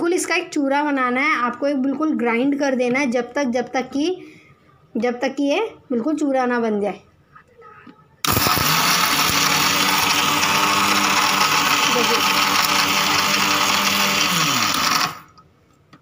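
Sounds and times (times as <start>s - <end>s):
mixer grinder whirring: 8.2s - 15.4s.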